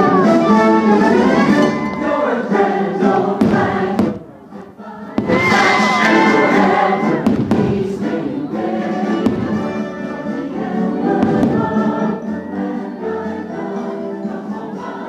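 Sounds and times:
orchestra playing: 0:00.0 - 0:14.4
choir singing: 0:00.0 - 0:15.0
firework bangs: 0:03.4 - 0:04.3, 0:05.1 - 0:08.1, 0:09.1 - 0:09.8, 0:11.2 - 0:11.8.

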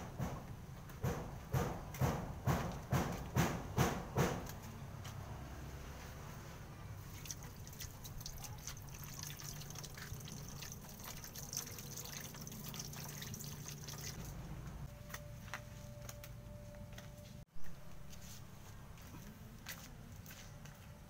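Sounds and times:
water running from a hose into bucket: 0:07.0 - 0:14.3
water drips and splashes: 0:07.0 - 0:14.4.

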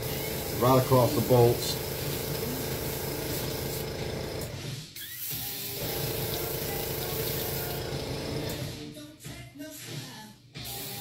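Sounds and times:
airbrush spraying hiss: 0:00.0 - 0:03.8.

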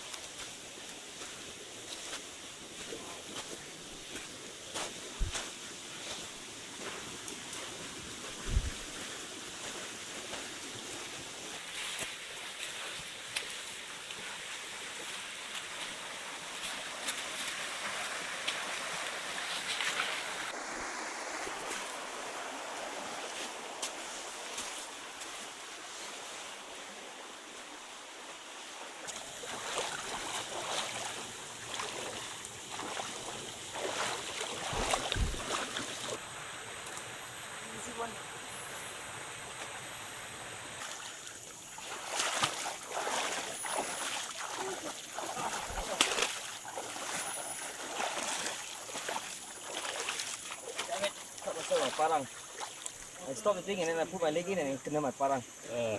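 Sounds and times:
shallow stream rushing: 0:00.0 - 0:55.9
boots splashing through water: 0:00.1 - 0:20.6, 0:22.9 - 0:25.5, 0:29.1 - 0:36.2, 0:40.8 - 0:53.3.

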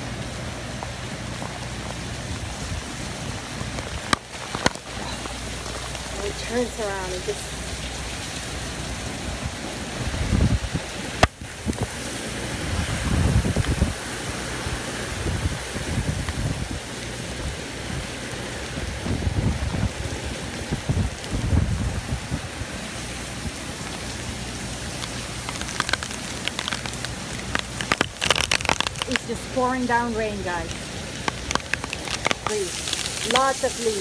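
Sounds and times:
torrential rain pouring: 0:00.0 - 0:34.0
wind buffeting microphone: 0:01.1 - 0:23.9.

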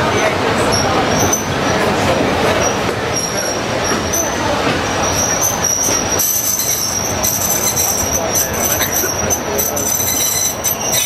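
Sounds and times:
people talking: 0:00.0 - 0:11.0
train carriages running: 0:00.0 - 0:11.0
wheel squeal on rails: 0:00.0 - 0:11.0.

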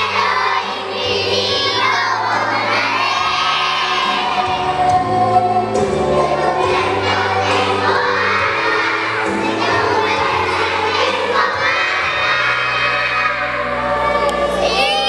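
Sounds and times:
children singing and shouting: 0:00.0 - 0:15.0.

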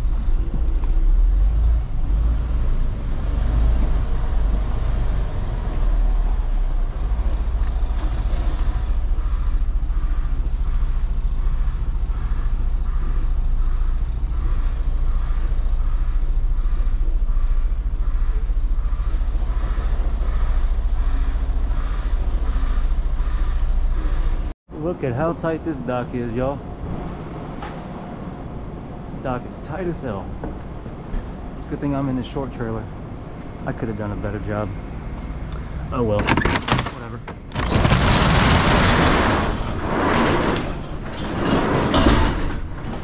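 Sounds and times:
diesel truck engine running: 0:00.0 - 0:26.8.

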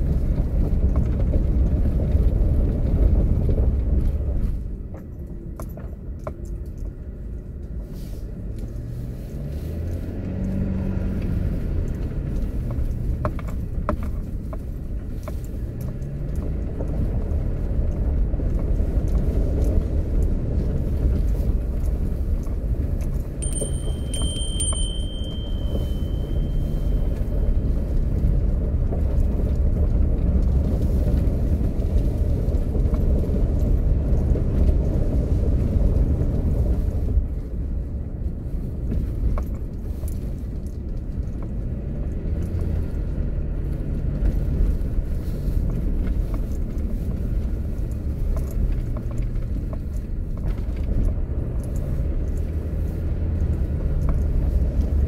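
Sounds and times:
car driving on gravel: 0:00.0 - 0:55.0
thin high tone: 0:23.4 - 0:27.7.

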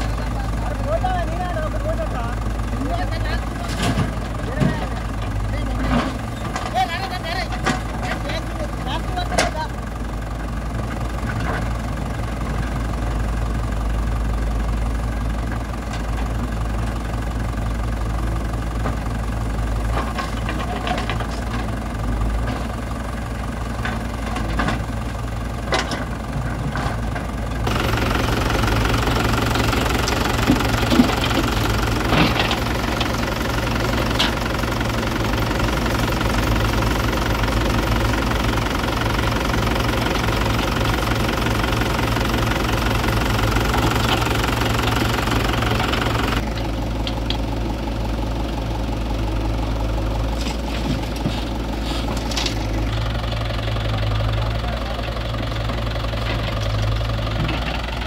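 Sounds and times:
diesel engines idling: 0:00.0 - 0:58.0
backhoe knocks: 0:18.5 - 0:47.5.

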